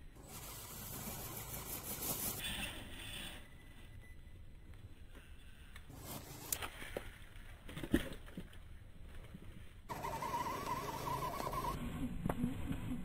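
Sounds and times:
wavering high whine: 9.9 - 13.0.

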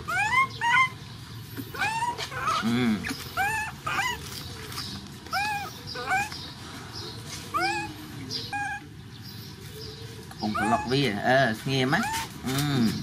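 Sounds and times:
puppy whimpering: 0.0 - 1.0, 1.6 - 4.5, 5.2 - 6.5, 7.5 - 9.0, 10.4 - 11.2, 11.9 - 12.6.

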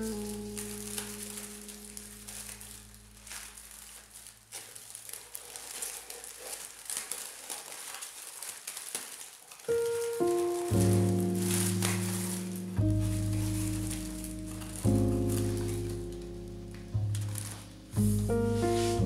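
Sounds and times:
background music: 0.0 - 3.6, 9.8 - 19.0
paper packing wrap rustling: 0.0 - 19.0.

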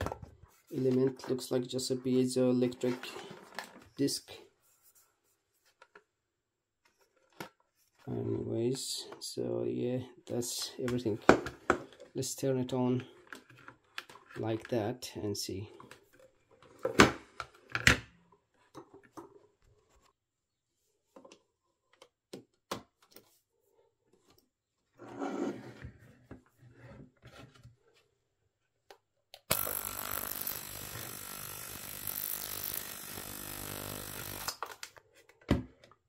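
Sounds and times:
ultrasonic cleaner buzzing: 29.5 - 34.6.

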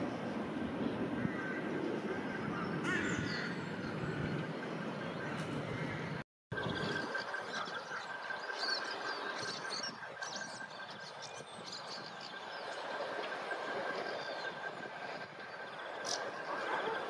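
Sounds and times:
distant traffic rumble: 0.0 - 17.0
small birds chirping: 2.4 - 17.0.

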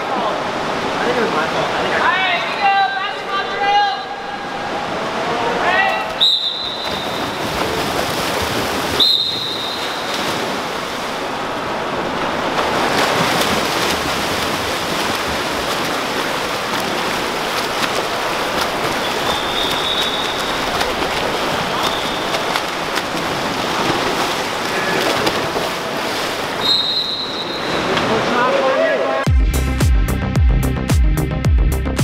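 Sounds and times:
swimmers splashing water: 0.0 - 29.2.

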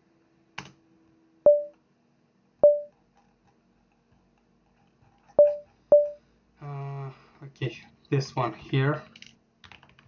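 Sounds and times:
computer alert pings: 1.5 - 1.7, 2.6 - 2.9, 5.4 - 6.2.

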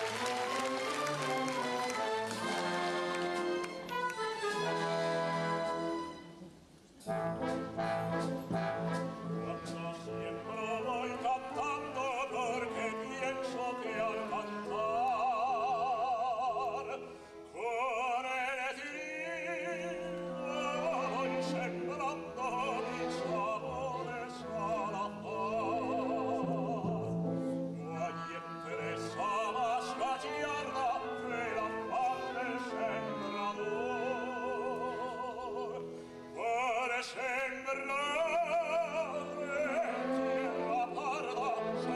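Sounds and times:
orchestral accompaniment: 0.0 - 41.9
operatic singing voices: 17.6 - 27.1, 27.8 - 41.9.

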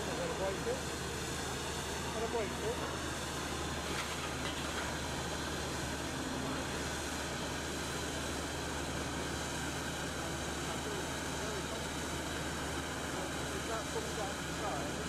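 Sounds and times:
diesel engine drone: 0.0 - 15.0.

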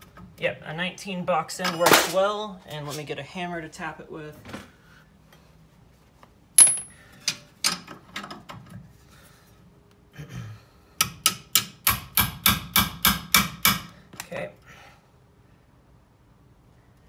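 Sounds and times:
metal tools clinking: 6.6 - 7.4
hammer tapping on wrench: 11.0 - 13.9.

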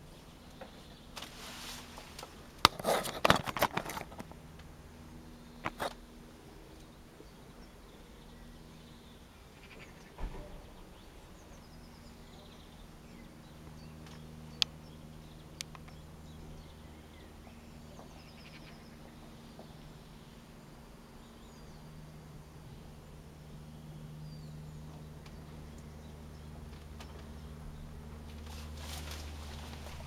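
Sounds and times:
birds chirping faintly: 0.0 - 30.0
propeller aircraft drone: 0.0 - 30.0
thump: 10.2 - 10.7.

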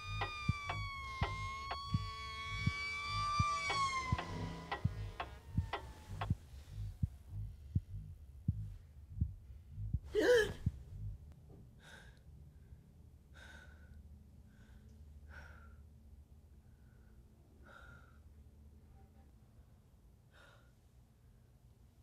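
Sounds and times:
high ringing tone: 0.0 - 6.3
heartbeat thump: 0.0 - 11.3
clock-like tick: 0.1 - 6.4
person gasping: 10.1 - 10.7.

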